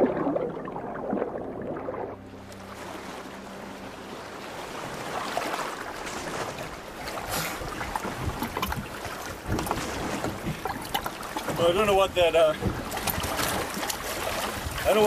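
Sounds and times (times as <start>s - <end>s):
background music: 0.0s - 7.0s
wind and sea rushing: 0.0s - 15.0s.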